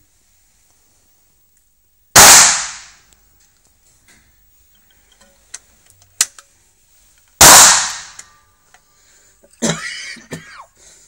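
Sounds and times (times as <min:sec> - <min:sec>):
gun handling clicks: 0:05.1 - 0:06.5.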